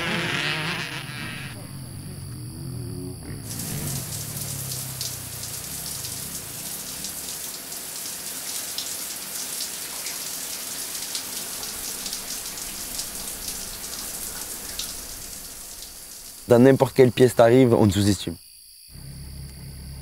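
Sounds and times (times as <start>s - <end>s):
shower water spraying: 3.4s - 16.5s.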